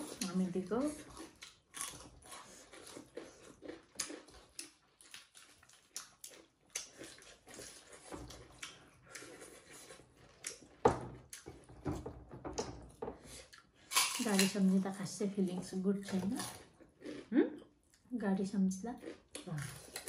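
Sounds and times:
chewing and lip smacks: 1.0s - 11.5s.

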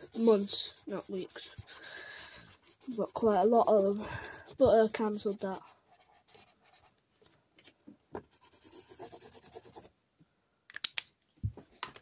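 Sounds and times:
marker pen scratching on paper: 0.0s - 7.0s, 8.2s - 9.9s.

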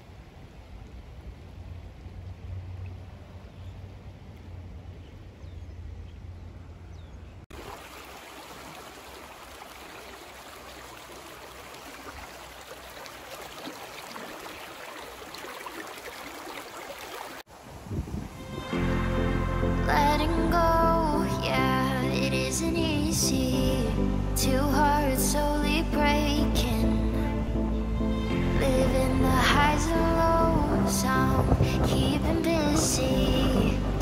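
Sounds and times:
stream rushing over rocks: 7.5s - 18.8s
low rumble: 17.9s - 34.0s.

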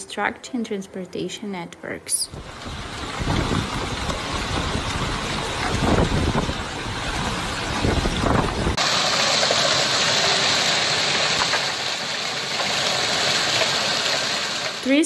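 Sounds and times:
wind rumbling on microphone: 2.3s - 8.8s
hail and rain pelting down: 2.4s - 15.0s
hailstones ticking: 2.4s - 15.0s.

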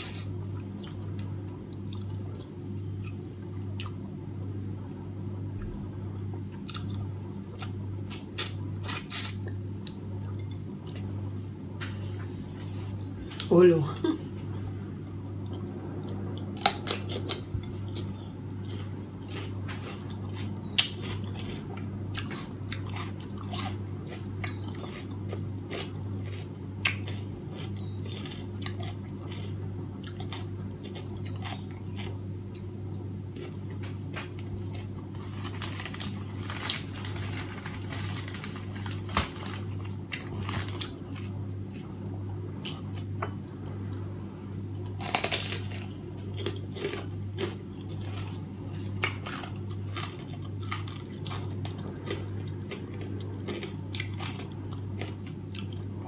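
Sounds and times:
low hum: 0.0s - 56.0s
chewing and mouth sounds: 6.6s - 11.1s, 15.4s - 36.8s, 45.0s - 56.0s.

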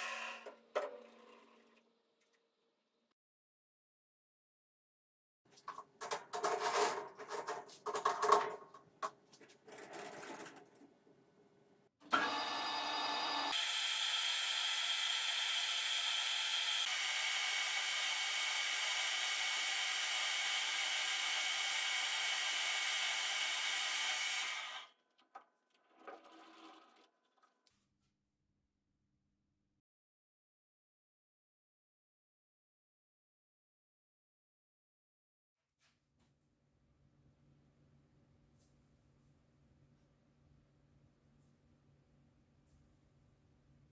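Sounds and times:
metal lathe running with gear whine: 12.1s - 19.2s.

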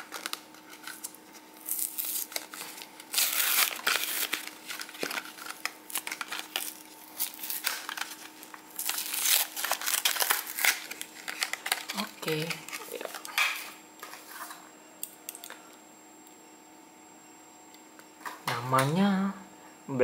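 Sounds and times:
plastic blister pack crinkling: 0.0s - 13.6s
cardboard tearing: 1.6s - 12.0s.

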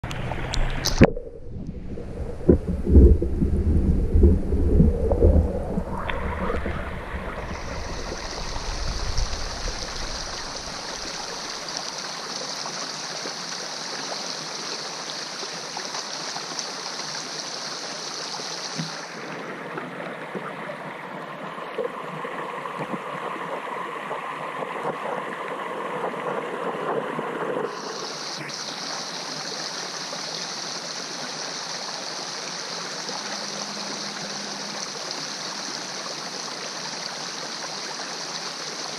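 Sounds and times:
heavy low rumble: 0.0s - 10.8s
water rushing underwater: 0.0s - 14.3s, 18.6s - 38.9s
high hiss: 27.7s - 36.7s.

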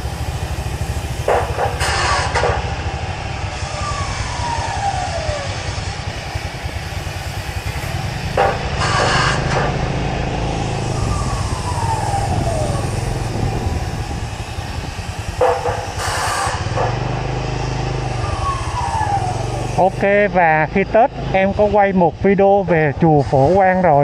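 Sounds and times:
traffic engines running: 0.0s - 24.0s
vehicles passing by: 0.0s - 24.0s
short harsh noise bursts: 8.4s - 9.7s.

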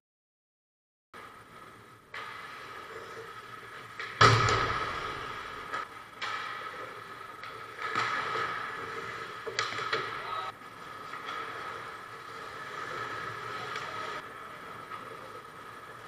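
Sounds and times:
skates hissing on ice: 1.2s - 4.0s, 6.6s - 16.0s
hockey stick hitting puck: 3.2s - 14.2s.

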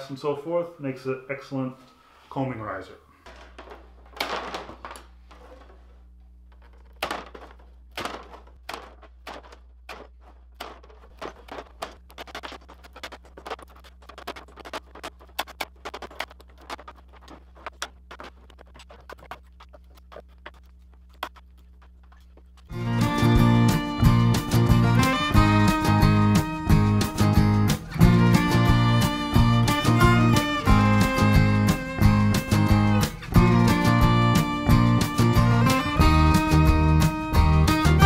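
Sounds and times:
hand cutters snapping wood: 6.8s - 13.6s.

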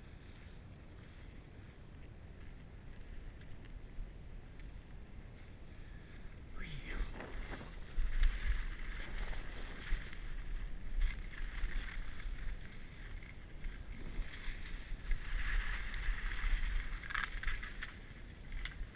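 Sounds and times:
wind buffeting microphone: 2.2s - 18.9s
skis scraping over snow: 7.1s - 18.4s.

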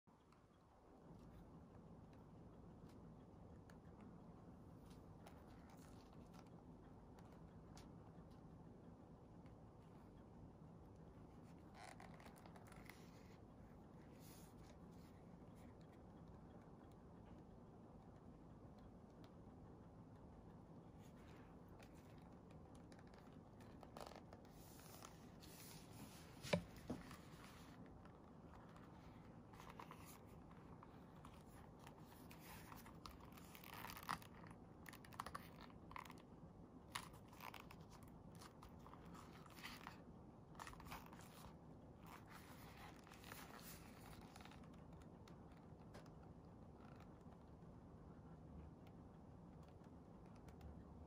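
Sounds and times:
leather rubbing and scraping: 11.7s - 13.0s.

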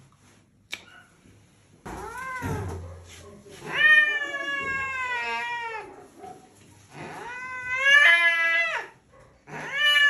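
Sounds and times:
cat yowling: 3.6s - 5.9s, 6.9s - 10.0s.

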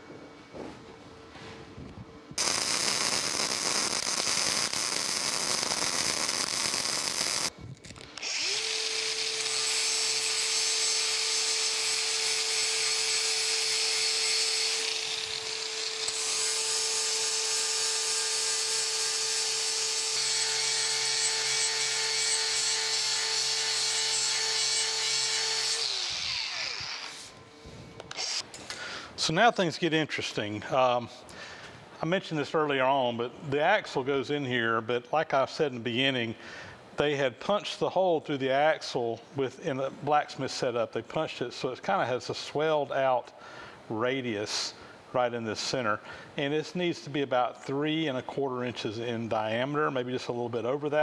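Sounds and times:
welder crackling sizzle: 2.4s - 8.6s
angle grinder whining: 2.4s - 27.4s, 28.1s - 28.6s.

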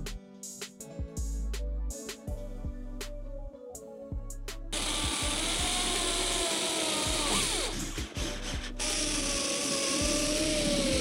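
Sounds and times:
electric drill whining: 4.8s - 11.0s.

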